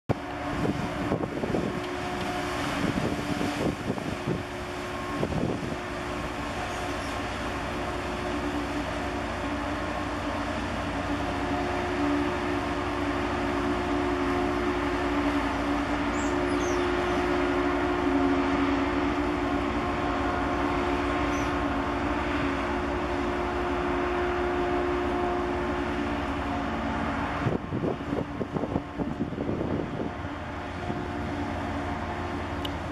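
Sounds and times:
wind buffeting microphone: 0.1s - 7.0s, 25.8s - 32.9s
ship engines droning: 0.1s - 32.9s.

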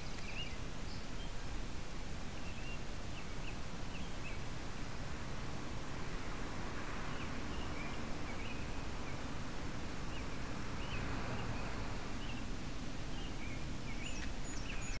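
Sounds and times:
birds chirping: 0.0s - 1.6s, 2.3s - 4.5s, 7.0s - 9.4s, 10.0s - 15.0s
microphone hiss and rumble: 0.0s - 15.0s.

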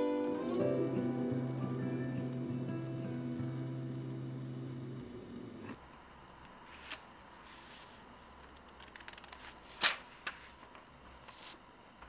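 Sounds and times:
book pages rustling: 6.6s - 8.0s, 8.7s - 12.0s
page flicking: 8.7s - 11.6s.

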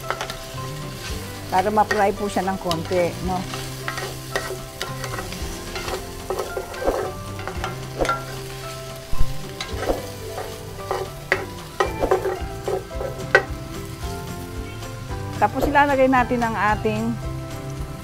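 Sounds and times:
wooden spoon scraping and knocking pan: 0.0s - 14.0s
meat sizzling in hot oil: 0.0s - 18.0s.

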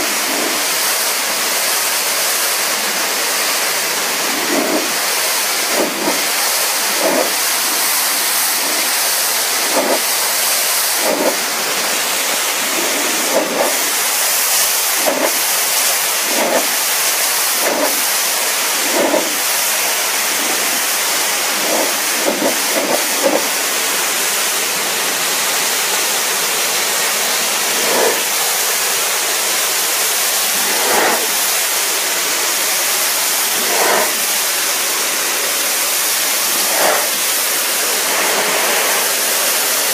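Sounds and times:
pressure washer jet hissing: 0.0s - 39.9s
water splashing: 4.1s - 14.2s, 14.8s - 23.7s, 27.4s - 31.9s, 33.3s - 34.5s, 36.2s - 37.7s.

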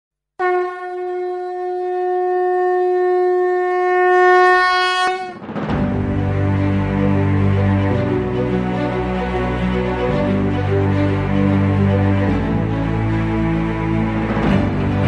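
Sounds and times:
conch shell blown: 0.4s - 5.4s
background music: 5.1s - 15.0s.

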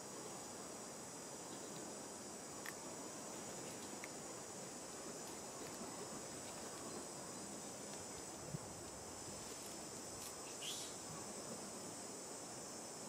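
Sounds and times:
faint outdoor hiss: 0.0s - 13.0s
high insect drone: 0.0s - 13.0s.

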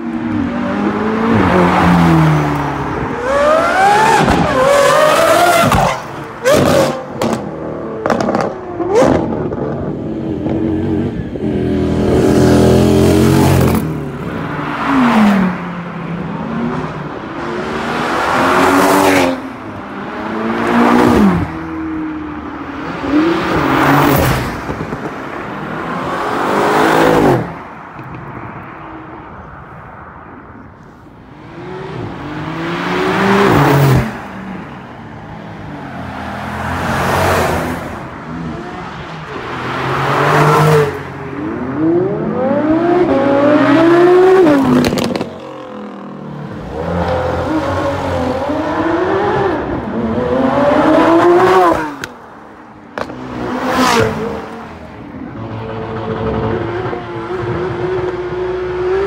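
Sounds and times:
engine revving and shifting gear: 3.2s - 9.8s, 39.4s - 52.2s, 55.3s - 59.0s.

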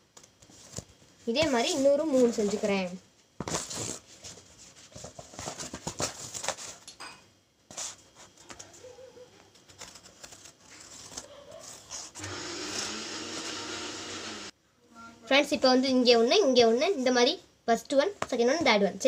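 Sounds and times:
cardboard rustling and clicks: 9.5s - 11.8s.

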